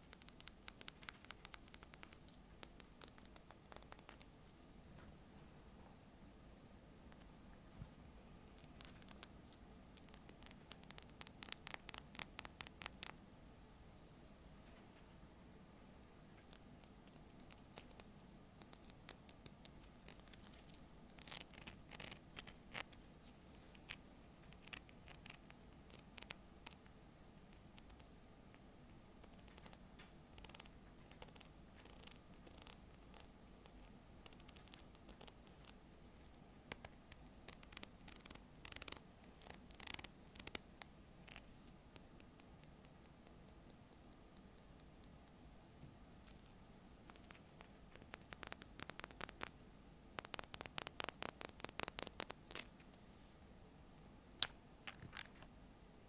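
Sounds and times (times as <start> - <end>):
fingers tapping on seashell: 0.0 - 4.3, 10.0 - 13.2, 29.2 - 35.8, 47.1 - 49.6, 50.2 - 52.7.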